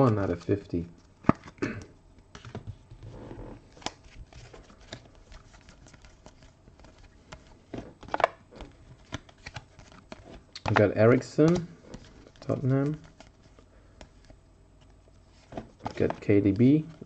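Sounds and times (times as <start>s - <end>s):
trading cards clicking and rustling: 3.7s - 17.0s.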